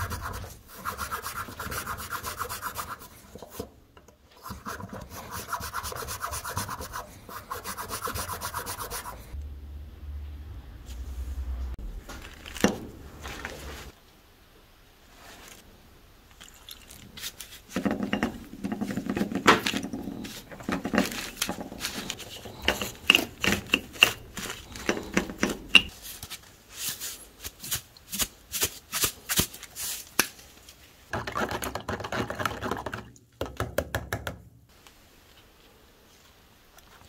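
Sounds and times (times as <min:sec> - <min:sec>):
brush scrubbing metal: 0:00.0 - 0:03.6, 0:04.4 - 0:09.4, 0:17.2 - 0:26.1.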